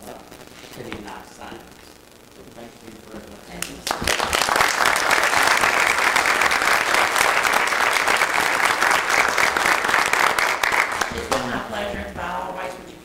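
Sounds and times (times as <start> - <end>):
crowd applauding: 3.8 - 11.6.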